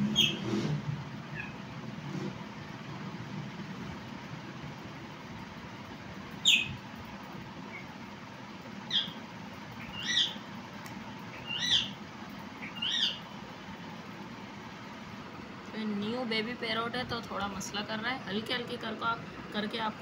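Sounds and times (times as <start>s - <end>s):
parrot chick high calls: 9.8s - 10.4s, 11.4s - 12.0s, 12.6s - 13.2s.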